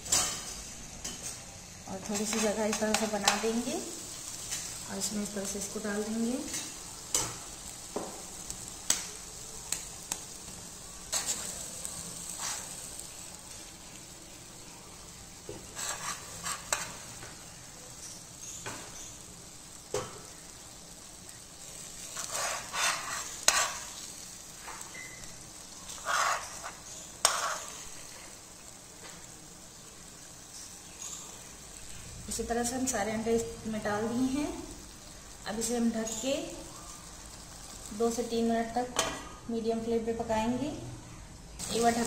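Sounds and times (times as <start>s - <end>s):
masala sizzling in a pan: 0.0s - 42.0s
steel spoon scraping and clinking: 22.1s - 23.9s.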